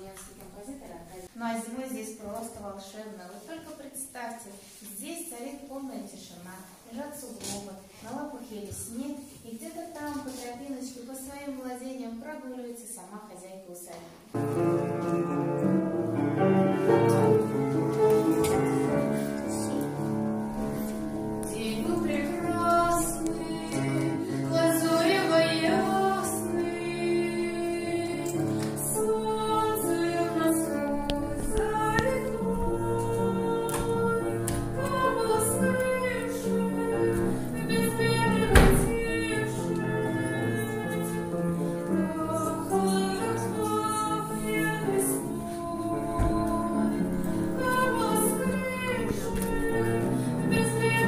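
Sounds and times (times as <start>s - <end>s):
music with women singing: 20.7s - 51.0s.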